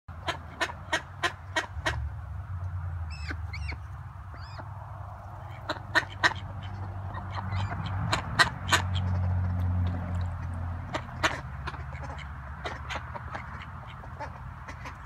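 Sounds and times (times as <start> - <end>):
ducks quacking: 0.1 - 2.1, 5.3 - 15.0.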